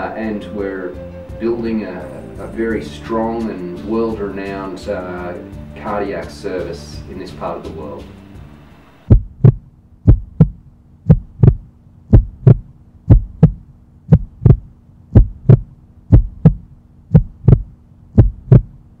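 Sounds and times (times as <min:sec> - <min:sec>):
faint steady hum: 0:06.8 - 0:19.0
heartbeat thumps: 0:09.0 - 0:18.9.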